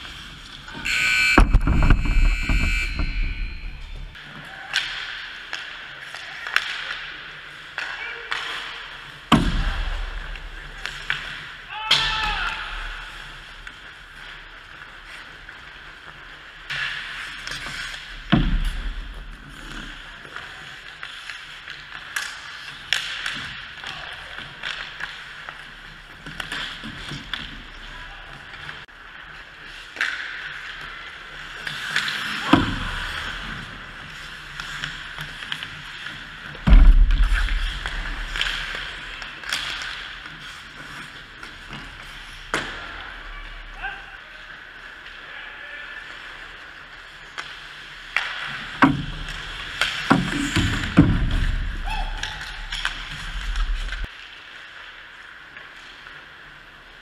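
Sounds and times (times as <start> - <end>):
heavy thumps: 0.9 - 4.2, 36.7 - 38.3, 53.2 - 54.1
stick and puck clacks: 1.4 - 43.2, 47.0 - 56.7
skate blades scraping ice: 3.7 - 57.0.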